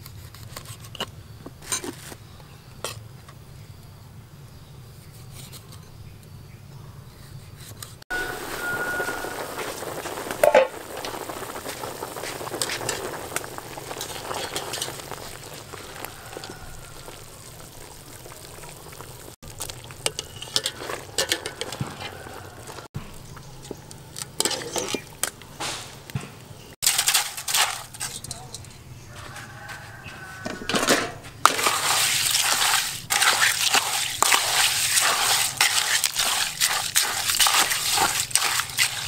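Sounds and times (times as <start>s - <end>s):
water boiling hard: 8.1s - 26.1s, 31.4s - 39.0s.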